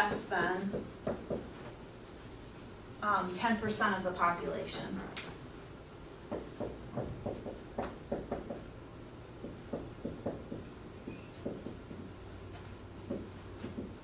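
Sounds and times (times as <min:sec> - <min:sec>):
marker writing on a whiteboard: 0:00.0 - 0:02.6, 0:06.2 - 0:14.0.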